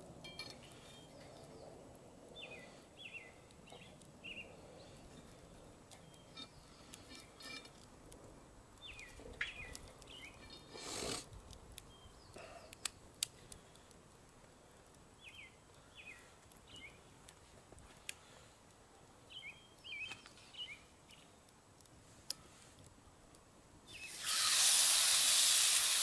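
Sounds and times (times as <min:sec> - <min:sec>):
wood fire crackling and popping: 0:00.0 - 0:26.0
small birds chirping: 0:00.5 - 0:07.4, 0:08.7 - 0:14.0, 0:14.7 - 0:17.3, 0:19.2 - 0:21.5, 0:23.8 - 0:24.3.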